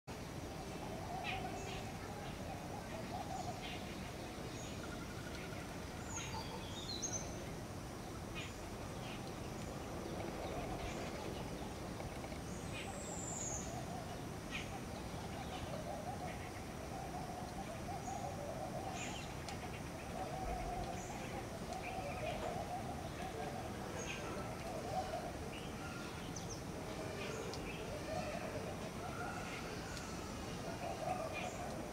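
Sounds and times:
low wavering bird call: 12.8 - 19.4.

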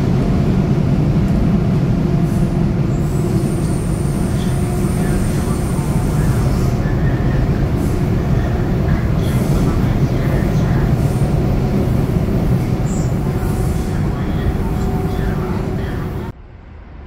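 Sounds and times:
metro train rumbling: 0.0 - 17.0.

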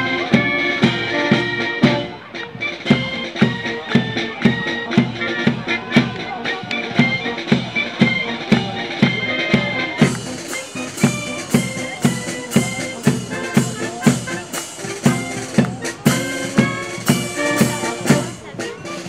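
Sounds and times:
saxophones and brass horns: 0.0 - 19.0
bass drum beating: 11.1 - 18.6.

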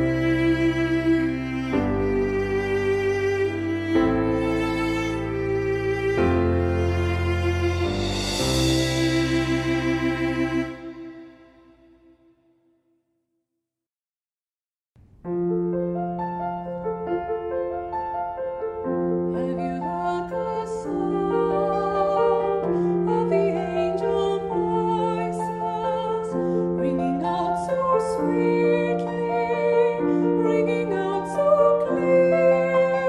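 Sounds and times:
piano accompaniment: 0.0 - 12.2, 15.0 - 33.0
woman singing with vibrato: 19.4 - 33.0.

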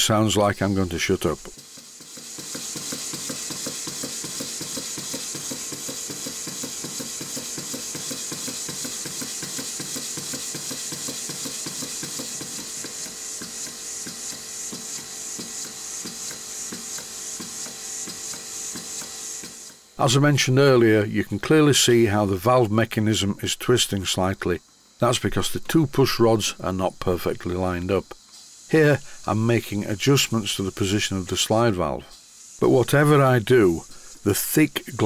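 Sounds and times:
engine knocking: 1.5 - 19.8
hiss of exhausting air: 1.5 - 19.8, 28.2 - 35.0.

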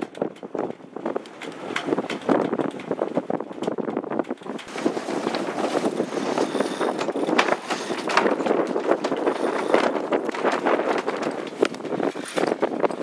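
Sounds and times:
wind and water rushing: 0.9 - 13.0.

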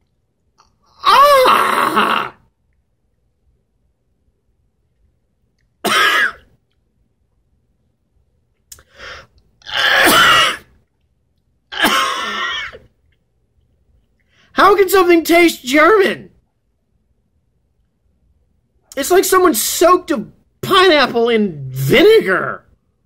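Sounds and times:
man coughing and groaning: 5.8 - 6.5, 9.7 - 10.7, 11.7 - 12.9.

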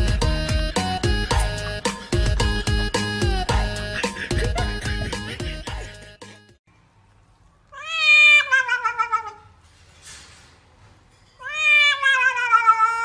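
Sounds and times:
cat meowing: 7.7 - 9.6, 11.4 - 13.0.

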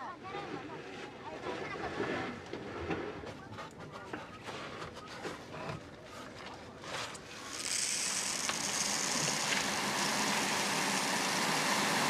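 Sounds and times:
steady rushing hiss: 7.2 - 12.0.

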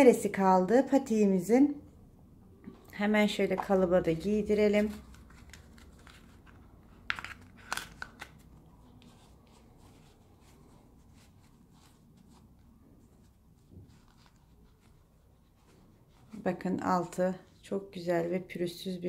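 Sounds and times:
plastic clicks and crinkles: 4.9 - 9.2
faint handling rustle: 8.4 - 17.7.

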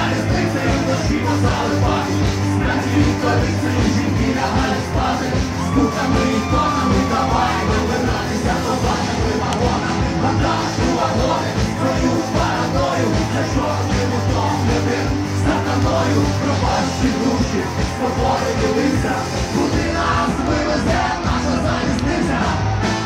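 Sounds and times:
drums: 0.0 - 23.0
electric guitar: 0.0 - 23.0
keyboard: 0.0 - 23.0.

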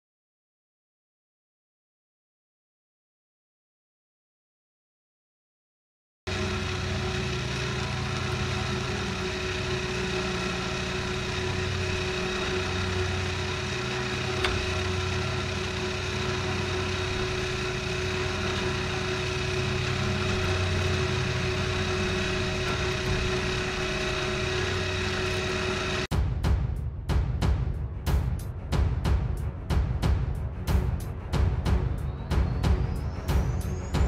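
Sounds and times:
motor running steadily: 6.3 - 26.1, 29.3 - 34.0.

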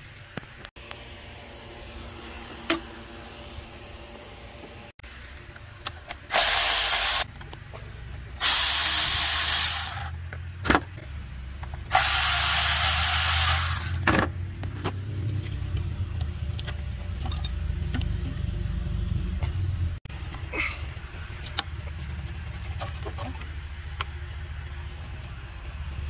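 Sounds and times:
cordless ratchet whirring: 6.3 - 7.3, 8.4 - 10.1, 11.9 - 14.0
low steady rumble: 13.2 - 26.0.

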